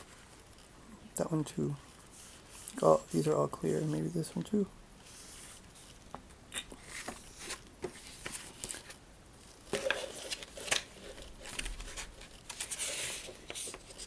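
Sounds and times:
paper rustling and crinkling: 0:06.8 - 0:09.0, 0:09.6 - 0:14.0.

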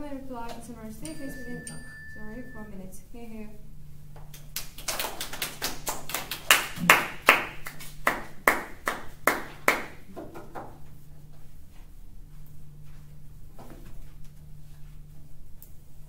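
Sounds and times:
people clapping: 0:04.3 - 0:10.7.

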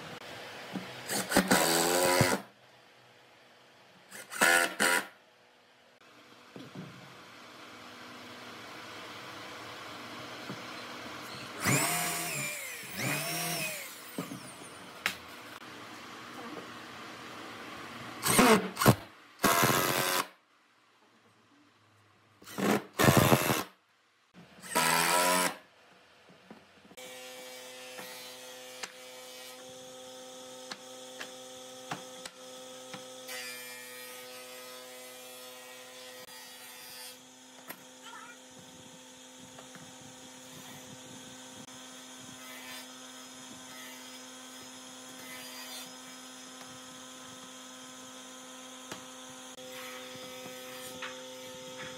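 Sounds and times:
cordless drill driving screws: 0:11.6 - 0:14.6, 0:18.2 - 0:20.3, 0:22.4 - 0:23.7.

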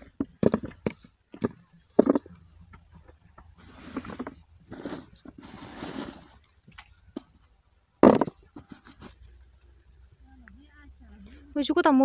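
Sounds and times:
garlic skins rustling and crunching: 0:00.0 - 0:09.2
plastic tub handling noise: 0:00.0 - 0:09.2.

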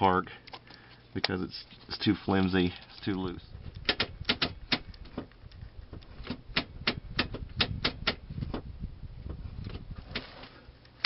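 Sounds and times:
low rumbling handling noise: 0:01.4 - 0:11.0
sharp clicks and taps: 0:02.3 - 0:08.6.

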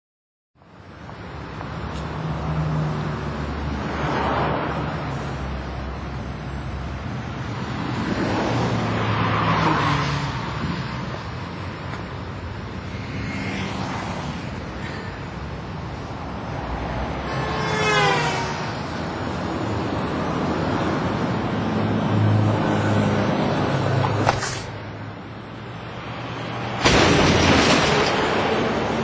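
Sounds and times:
road traffic rumble: 0:00.6 - 0:29.0
vehicles passing: 0:00.6 - 0:29.0.

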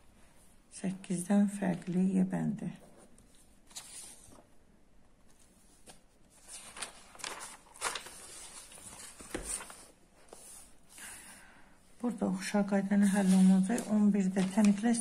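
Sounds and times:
paper pages turning: 0:02.8 - 0:04.5, 0:05.3 - 0:10.7, 0:13.0 - 0:15.0.

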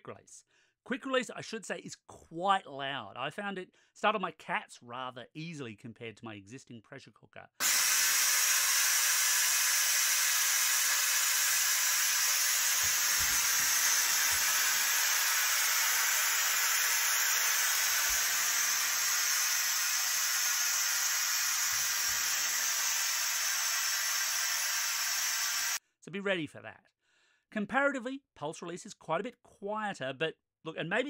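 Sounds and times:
pressure cooker venting steam: 0:07.6 - 0:25.8.

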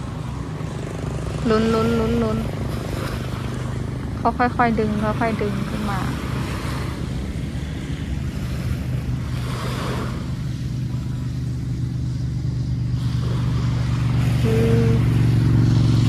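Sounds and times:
low engine hum: 0:00.0 - 0:16.0
waves washing onto sand: 0:05.6 - 0:11.8, 0:12.9 - 0:16.0.

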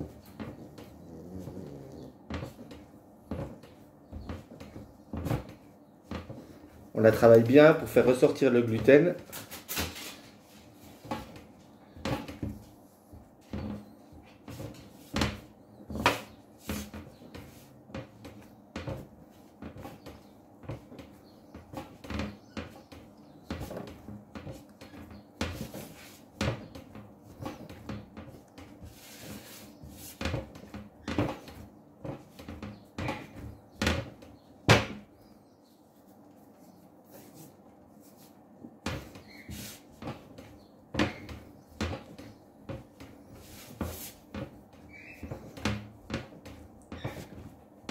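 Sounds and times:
dough thumping and slapping: 0:10.9 - 0:35.2, 0:38.6 - 0:47.9.

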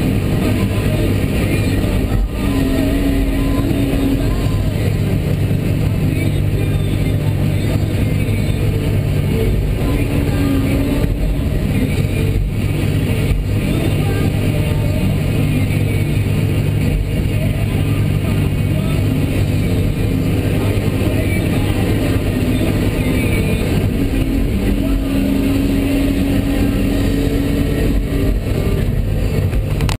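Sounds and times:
excavator diesel engine running: 0:00.0 - 0:30.0
high steady whine: 0:00.0 - 0:30.0.

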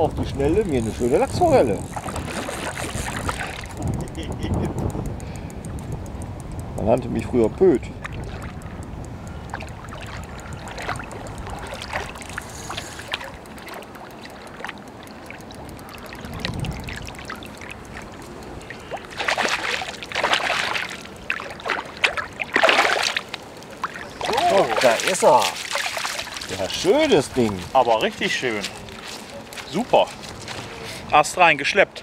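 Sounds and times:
wind on microphone: 0:00.0 - 0:13.6, 0:15.6 - 0:20.9
fish splashing in water: 0:00.8 - 0:04.2, 0:07.9 - 0:30.6.

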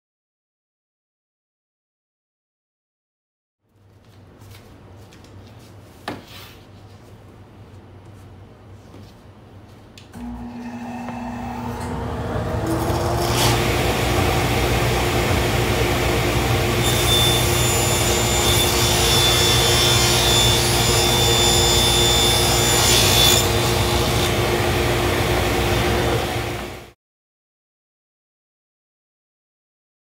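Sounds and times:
table saw motor hum: 0:10.1 - 0:26.9.

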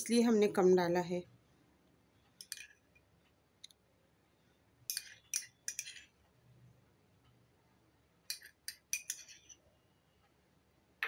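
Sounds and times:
steel spoon clinking against glass: 0:04.9 - 0:06.0, 0:08.3 - 0:09.5.

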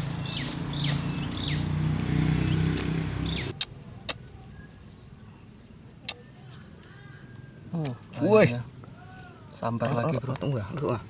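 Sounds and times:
high falling chirps: 0:00.0 - 0:03.6
engine humming: 0:00.0 - 0:08.0.

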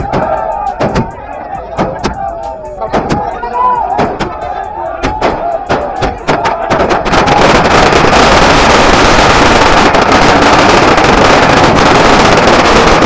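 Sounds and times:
firecrackers crackling: 0:04.0 - 0:13.0.

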